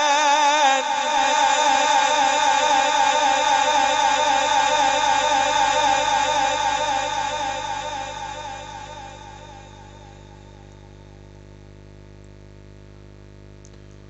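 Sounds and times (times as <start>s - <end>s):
man reciting melodically: 0.0s - 10.6s.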